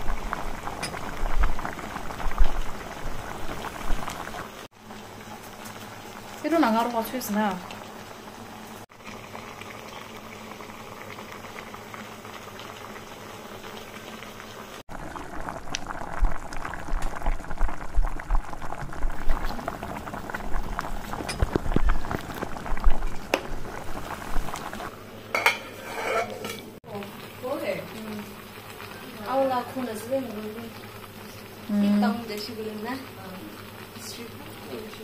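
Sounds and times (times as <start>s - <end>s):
food sizzling and bubbling in pot: 0.0s - 35.0s
metal pot lid clinking: 25.3s - 26.7s.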